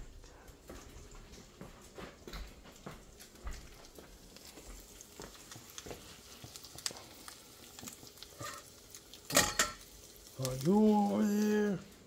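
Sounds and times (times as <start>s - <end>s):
toast frying in butter: 0.3s - 12.0s.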